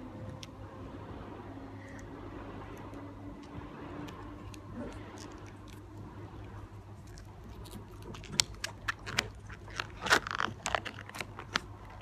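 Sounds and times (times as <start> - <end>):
sharp clicks and crackles: 2.8 - 12.0
fingernails scratching wrap coating: 7.5 - 12.0.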